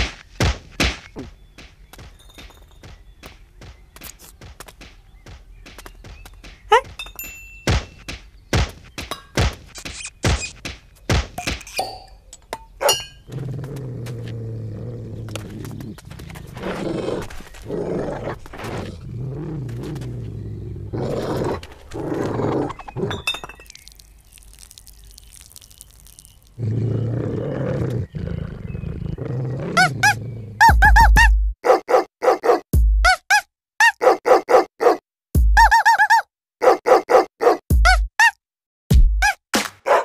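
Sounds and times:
cartoon dog growling: 26.7 - 31.2.

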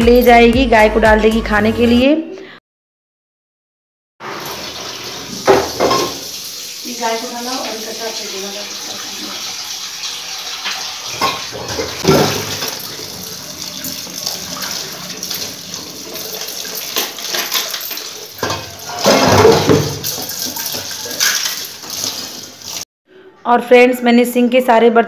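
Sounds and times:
dishes knocking and clattering: 4.2 - 6.3, 10.6 - 22.8
tap running into sink: 4.3 - 6.3, 10.6 - 22.2.

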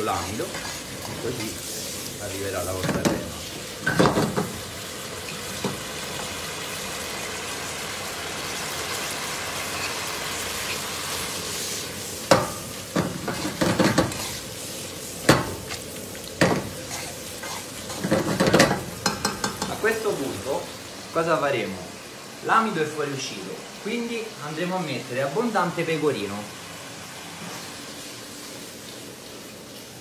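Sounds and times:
pasta sizzling in a pan: 0.0 - 30.0
fork stirring and mashing: 0.5 - 1.5.

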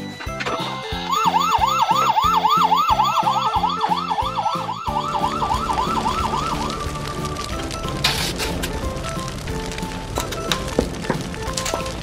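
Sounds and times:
toy siren yelping: 0.4 - 7.0.

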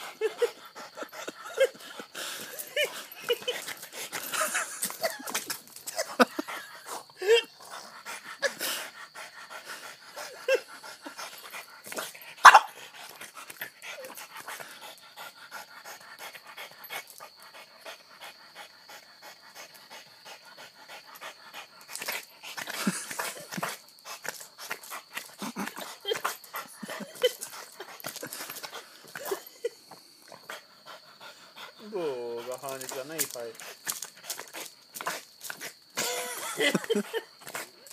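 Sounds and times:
dog panting hard: 0.0 - 35.9
small clicks and scuffs: 3.6 - 6.0, 32.7 - 35.8.

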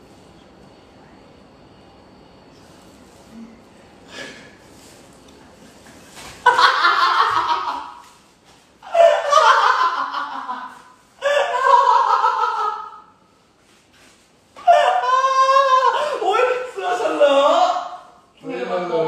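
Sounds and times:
man laughing hard: 6.4 - 8.1, 8.8 - 13.0.

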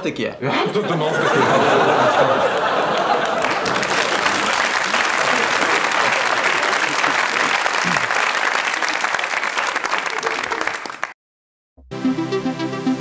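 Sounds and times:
studio audience applauding: 1.4 - 11.2.

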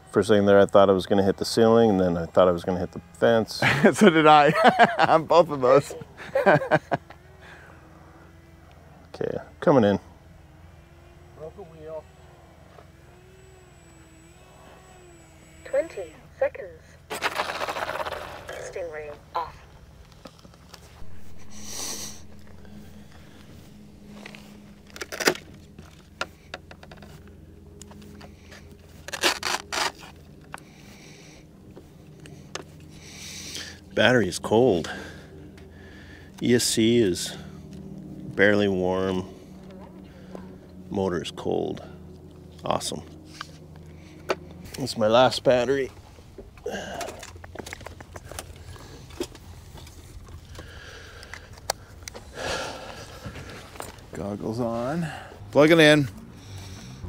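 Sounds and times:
faint low hum: 0.0 - 57.0
low steady rumble: 18.2 - 57.0.

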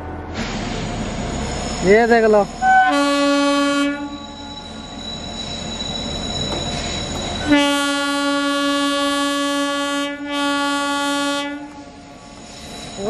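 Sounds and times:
locomotive horn blasts: 2.6 - 4.2, 7.4 - 11.8.

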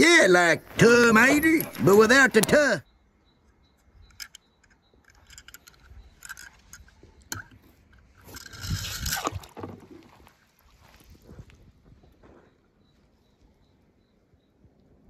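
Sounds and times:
toy truck clicks and scrapes: 4.0 - 9.6.

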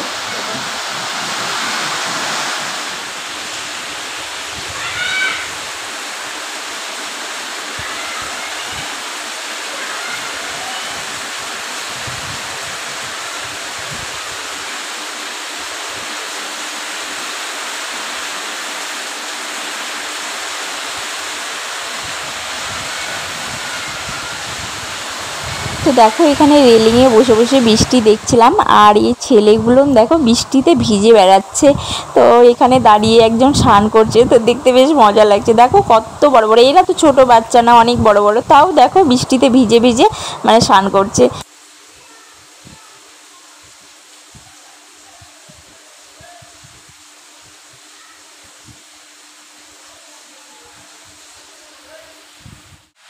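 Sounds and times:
roof runoff splashing: 0.0 - 31.0
heavy rain pouring: 0.0 - 53.0.

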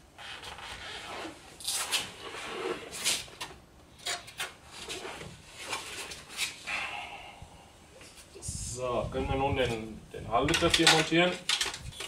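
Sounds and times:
plastic parts rubbing and scraping: 0.2 - 6.6, 10.4 - 12.0.

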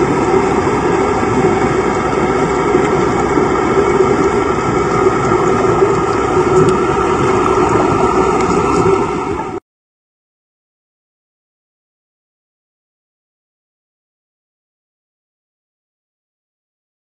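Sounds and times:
boat engine drone underwater: 0.0 - 9.6.

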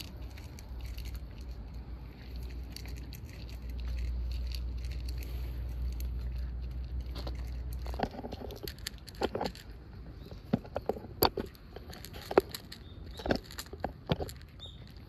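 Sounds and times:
cat crunching dry kibble: 0.0 - 15.0.

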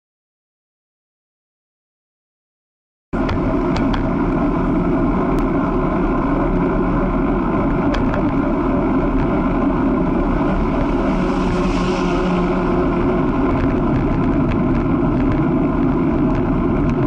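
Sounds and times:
road and wind noise: 3.2 - 17.0
vehicle engine cruising: 3.2 - 17.0.

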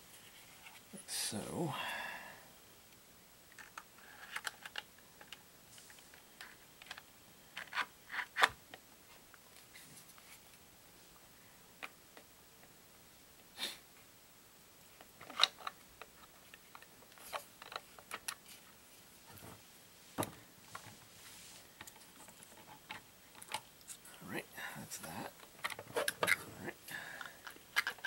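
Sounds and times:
plastic parts clicking and knocking: 3.5 - 5.4, 6.4 - 8.6, 15.1 - 18.5, 25.3 - 26.4, 27.2 - 28.0.

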